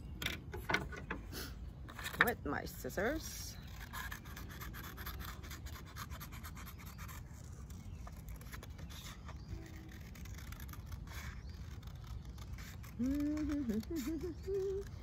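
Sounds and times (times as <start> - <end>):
scissors snipping paper: 3.6 - 15.0.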